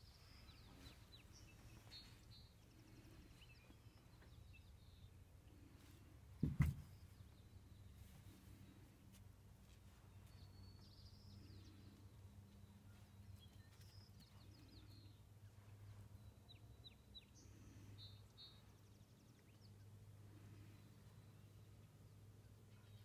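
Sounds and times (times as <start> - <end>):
low steady hum: 0.0 - 23.0
faint bird chirps: 10.0 - 23.0.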